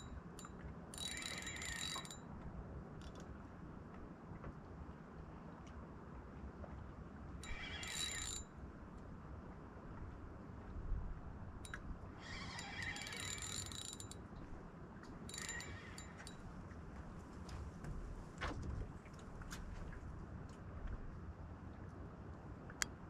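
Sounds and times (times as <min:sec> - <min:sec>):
fishing reel drag buzzing: 0:01.0 - 0:02.2, 0:07.4 - 0:08.4, 0:12.3 - 0:14.2, 0:15.3 - 0:16.3.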